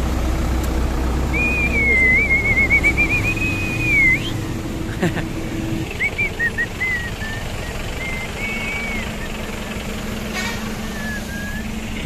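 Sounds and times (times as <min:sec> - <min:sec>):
motorcycle engine idling: 0:00.0 - 0:12.0
high whistled notes: 0:01.4 - 0:04.4, 0:06.0 - 0:09.8, 0:10.8 - 0:11.8.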